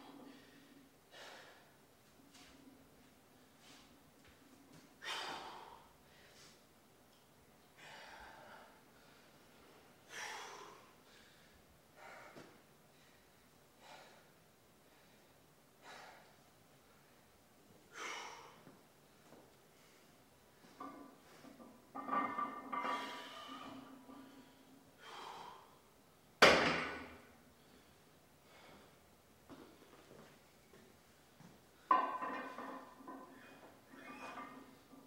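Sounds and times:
person breathing hard: 0.1 - 1.8, 7.8 - 9.5, 10.1 - 17.2, 23.0 - 25.9.

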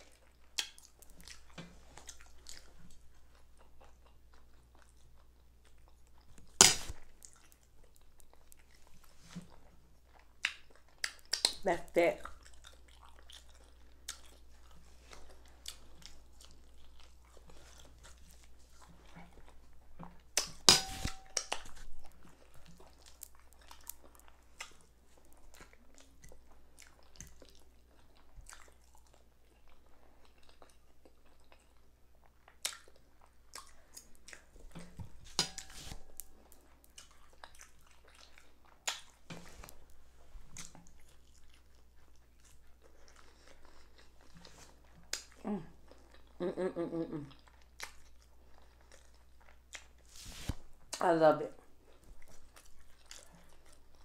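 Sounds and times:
person chewing food: 0.0 - 51.0, 51.6 - 54.0.

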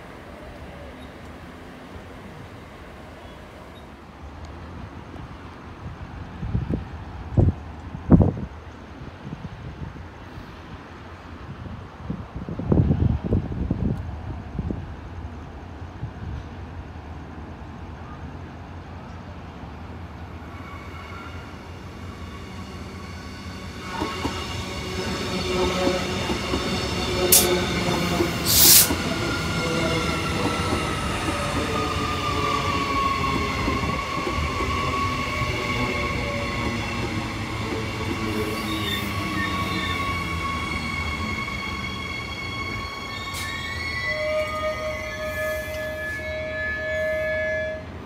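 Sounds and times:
electric train whine: 19.7 - 48.0.

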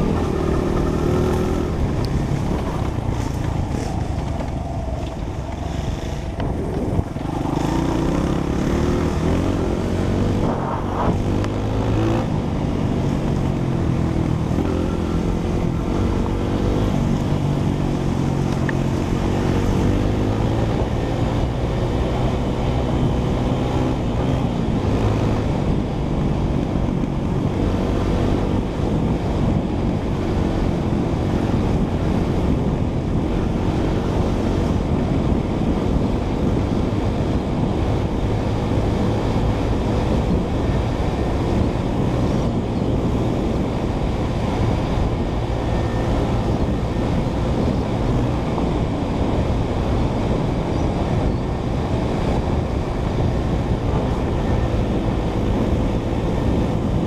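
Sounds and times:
dirt bike engine accelerating: 0.0 - 4.6
wind rushing over microphone: 0.0 - 57.0.

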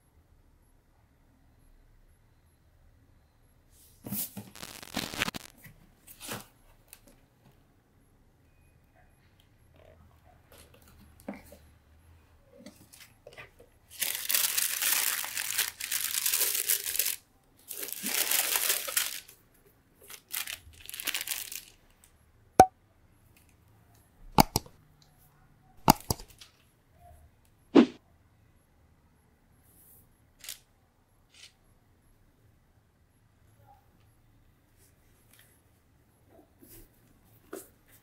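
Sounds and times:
tissue paper rustling: 13.9 - 19.3, 20.1 - 21.8
short sharp clicks: 24.4 - 24.7, 25.8 - 26.3.

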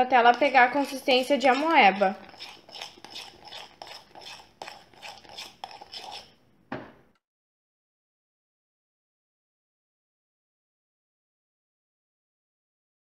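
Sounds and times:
metal spoon scraping glass bowl: 0.0 - 6.4
slime being stirred: 0.0 - 6.4.

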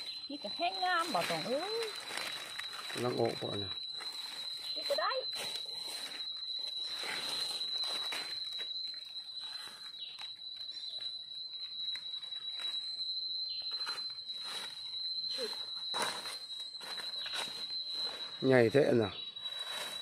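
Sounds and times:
dry leaves rustling and crackling: 0.0 - 10.8, 15.4 - 18.3
high-pitched whine: 0.0 - 20.0.

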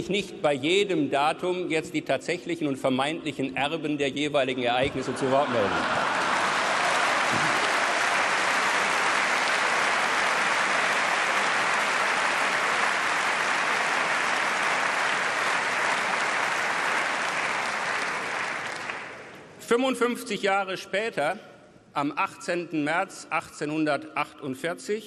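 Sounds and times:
audience applauding: 5.5 - 19.4.

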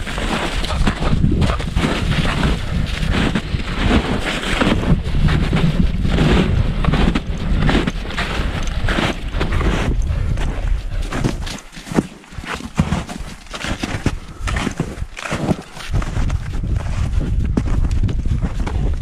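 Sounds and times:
wind buffeting microphone: 0.0 - 11.5, 15.9 - 19.0
footsteps crunching in snow: 0.0 - 18.8.

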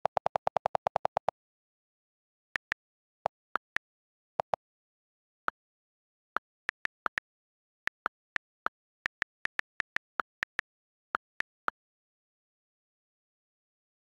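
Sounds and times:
on-screen keyboard clicks: 0.0 - 1.3, 6.4 - 11.5.

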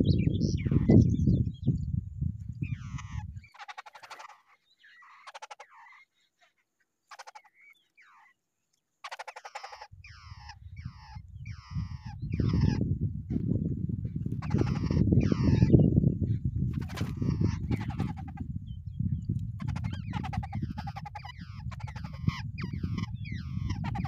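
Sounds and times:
babblers chattering calls: 0.4 - 1.0, 2.6 - 8.4, 9.0 - 12.8, 14.3 - 15.9, 16.7 - 18.4, 19.6 - 24.0.

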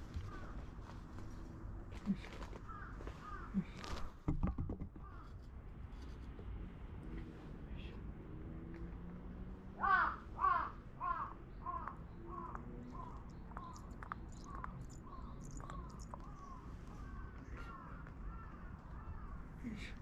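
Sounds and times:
crow cawing: 2.6 - 3.5, 9.8 - 13.8, 14.5 - 19.4.

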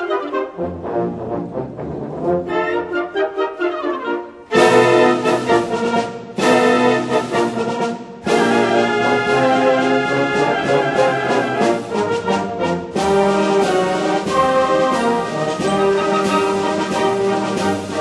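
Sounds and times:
concert band brass chords: 4.3 - 18.0.

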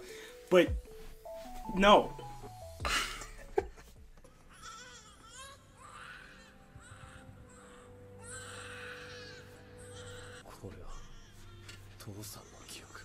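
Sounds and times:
infant crying: 4.2 - 11.8.

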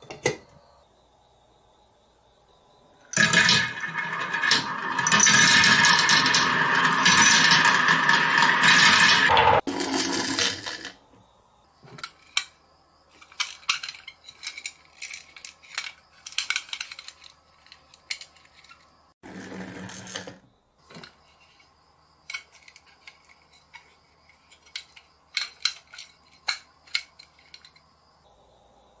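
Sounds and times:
toy trucks clicking and clinking: 3.1 - 9.4, 11.9 - 27.9
toy truck rolling on table: 3.1 - 11.0, 11.8 - 27.8.

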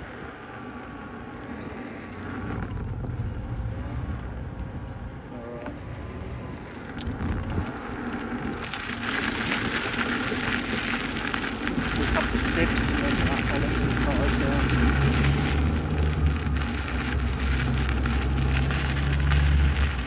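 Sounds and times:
tyre rolling on asphalt: 0.0 - 20.0
tyre crunching on gravel: 7.0 - 20.0.

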